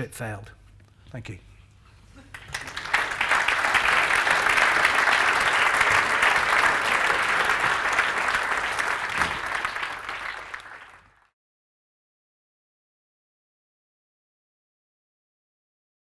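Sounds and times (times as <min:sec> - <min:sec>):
audience applauding: 0:02.3 - 0:11.3.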